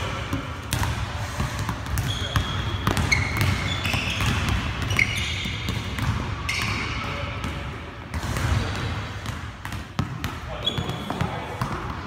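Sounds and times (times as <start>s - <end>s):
basketballs bouncing on hardwood: 0.0s - 12.0s
sneaker squeaks: 1.5s - 7.3s, 10.5s - 11.6s.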